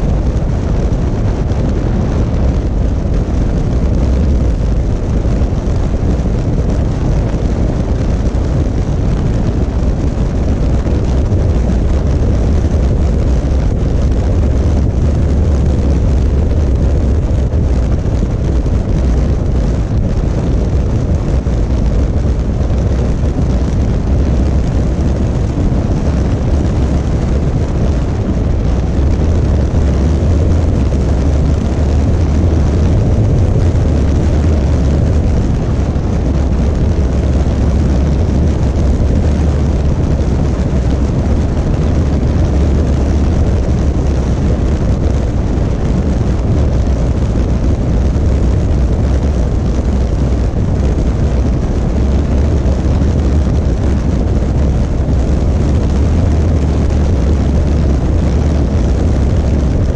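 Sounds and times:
motorcycle engine rumble: 0:00.0 - 0:59.9
wind rush on microphone: 0:00.0 - 0:59.9.

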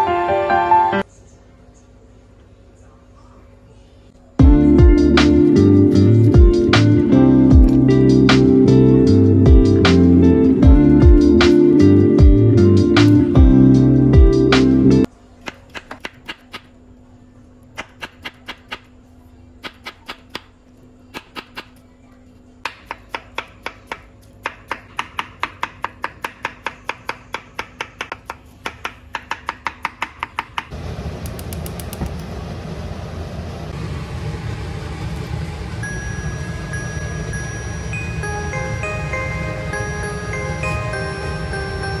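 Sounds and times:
gas stove burner hissing: 0:30.7 - 0:40.9.

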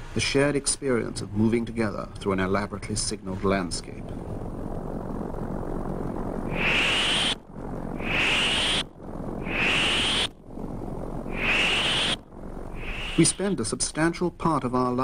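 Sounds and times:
synthesised whoosh with whistle: 0:06.4 - 0:10.4, 0:11.2 - 0:13.6.

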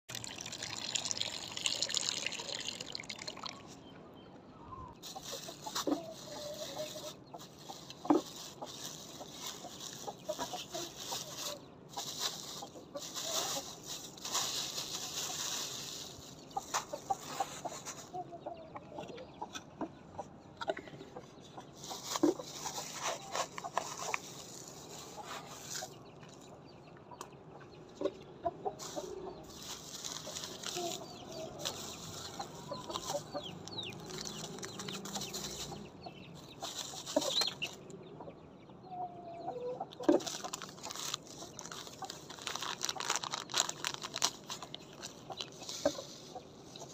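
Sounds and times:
plastic bags crinkling: 0:00.1 - 0:03.7, 0:05.0 - 0:18.0, 0:21.8 - 0:26.0, 0:28.8 - 0:37.7, 0:40.0 - 0:46.9
hens clucking: 0:04.9 - 0:46.9.

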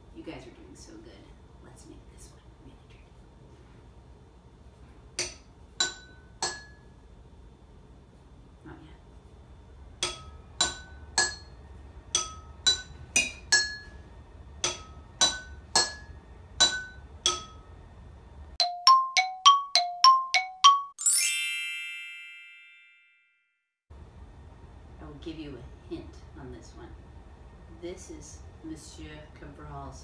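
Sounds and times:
spoon striking water-filled glass jars: 0:05.2 - 0:06.8, 0:10.0 - 0:14.0, 0:14.6 - 0:17.6.

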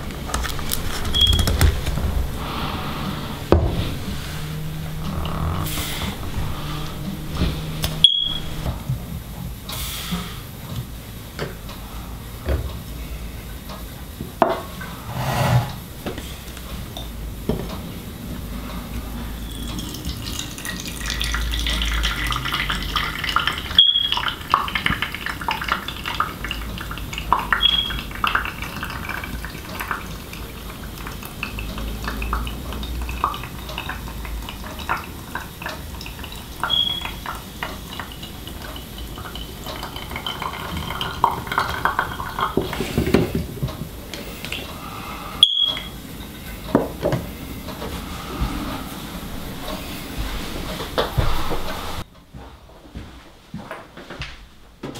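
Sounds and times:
liquid trickling: 0:00.0 - 0:10.6, 0:18.9 - 0:46.6
short high beeps: 0:08.0 - 0:08.6, 0:45.4 - 0:46.0
hiss: 0:09.7 - 0:10.5.

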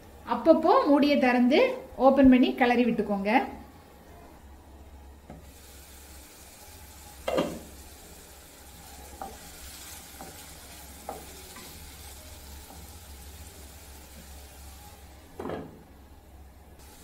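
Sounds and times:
potatoes sizzling in oil: 0:05.4 - 0:15.4, 0:16.8 - 0:17.0.

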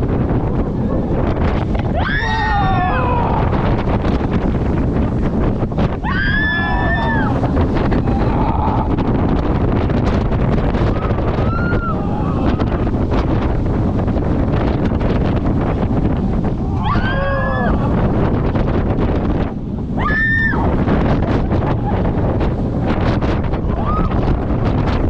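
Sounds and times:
roller coaster train rumbling: 0:00.0 - 0:25.0
wind rushing over microphone: 0:00.0 - 0:25.0
riders screaming: 0:01.9 - 0:03.8, 0:06.0 - 0:09.1, 0:10.8 - 0:12.9, 0:16.6 - 0:18.0, 0:20.0 - 0:20.7.

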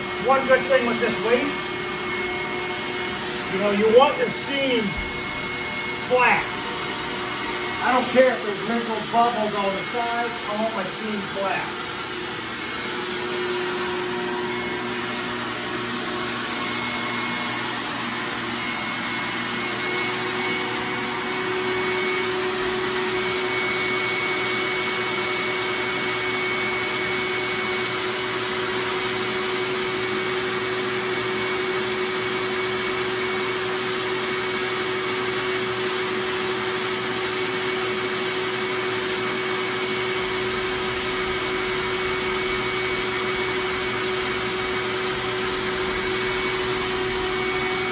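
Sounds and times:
small electric motor whirring: 0:39.4 - 0:47.9.

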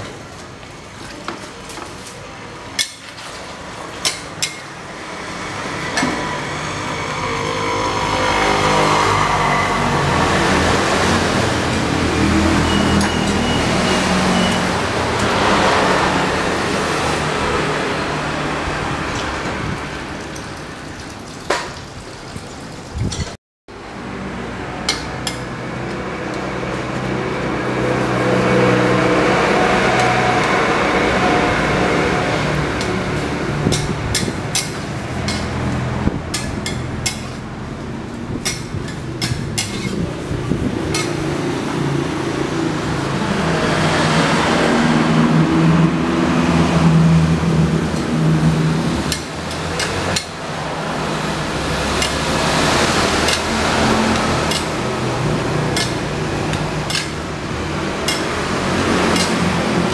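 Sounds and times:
metal spatula scraping a wok: 0:33.7 - 0:37.4, 0:38.4 - 0:41.2, 0:51.8 - 0:57.3, 0:58.0 - 0:59.9.

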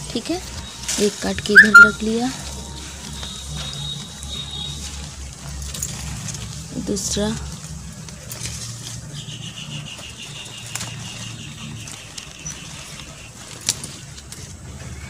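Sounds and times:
leaves rustling: 0:00.0 - 0:15.0
bird trilling: 0:01.5 - 0:02.0.

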